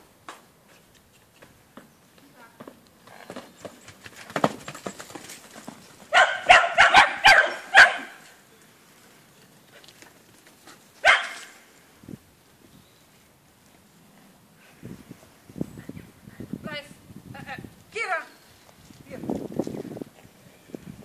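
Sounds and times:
dog barking: 6.1 - 8.2, 11.0 - 11.5.

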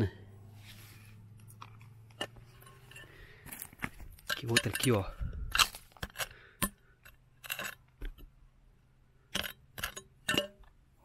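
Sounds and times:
stones clinking and scraping: 1.4 - 8.4.

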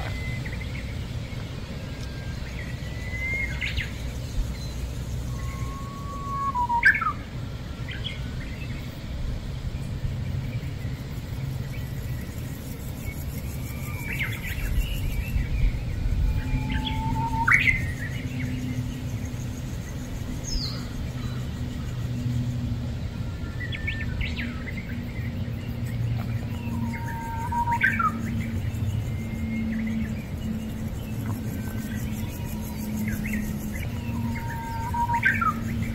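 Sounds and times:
rising bird calls: 0.0 - 7.3, 13.6 - 19.1, 26.2 - 35.9
birds chirping: 0.0 - 35.9
steady low rumble: 0.0 - 35.9.

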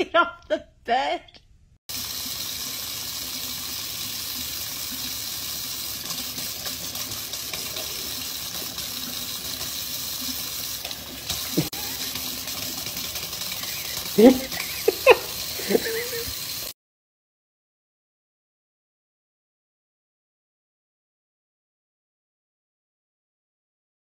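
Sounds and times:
faucet water splashing into sink: 1.9 - 16.7.

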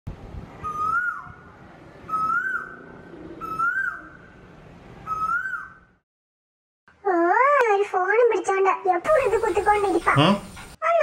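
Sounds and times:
bird whistled call: 0.6 - 1.4, 2.1 - 2.8, 3.4 - 4.2, 5.0 - 5.8.

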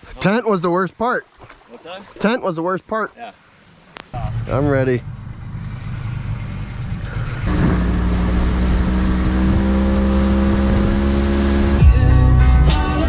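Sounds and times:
outboard motor droning: 4.1 - 11.9
rush of wind and water: 7.3 - 11.6.

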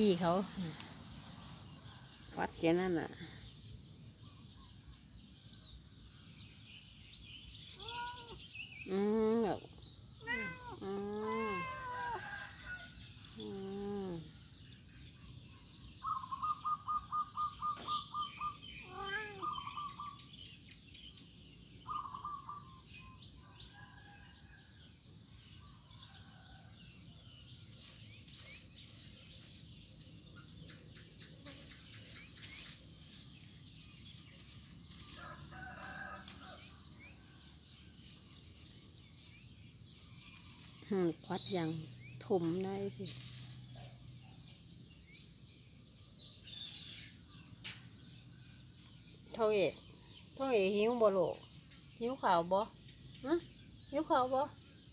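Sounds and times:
cat meowing: 7.8 - 8.4, 10.2 - 12.2, 18.8 - 19.5.

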